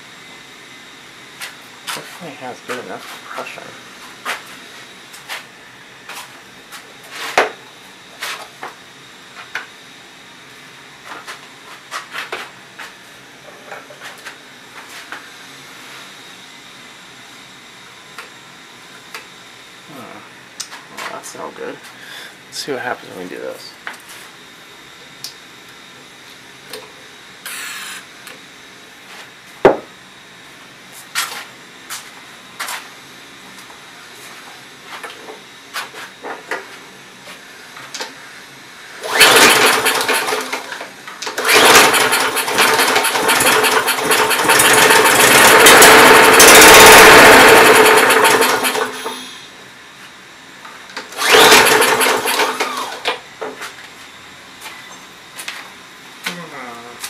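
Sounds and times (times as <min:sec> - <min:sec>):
lawn mower engine pull-started: 0:39.0 - 0:49.3, 0:51.0 - 0:53.2.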